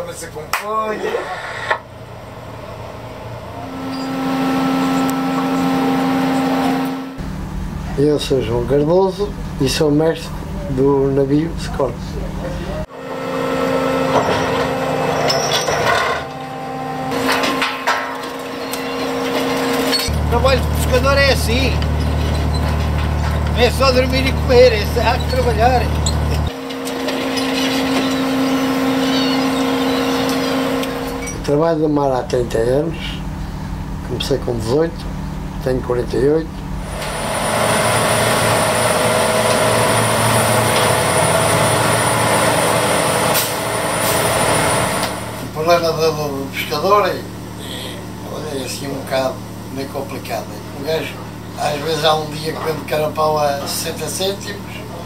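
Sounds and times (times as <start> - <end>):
constant hum: 0.0 - 55.0
engine drone: 0.0 - 55.0
gear knocking and clattering: 17.2 - 29.4.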